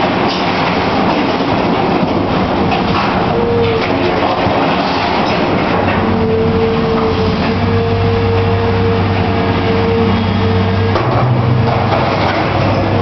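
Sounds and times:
engine clatter: 0:00.0 - 0:07.7, 0:10.8 - 0:13.0
excavator diesel engine: 0:00.0 - 0:13.0
hydraulic whine: 0:05.8 - 0:13.0.

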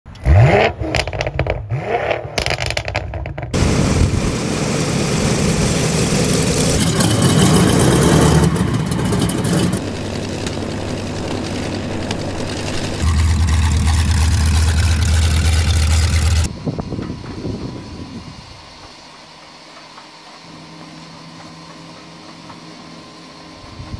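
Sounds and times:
propeller aircraft engines running: 0:02.7 - 0:23.9
intro sound: 0:12.9 - 0:16.5.

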